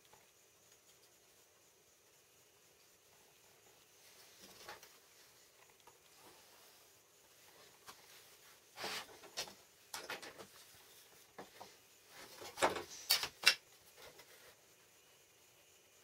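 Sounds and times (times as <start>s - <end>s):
objects scraping and knocking: 7.6s - 13.2s.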